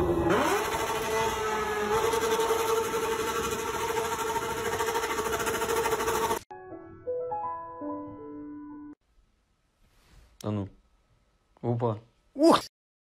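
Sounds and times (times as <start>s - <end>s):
engine revving at high speed: 0.0s - 6.4s.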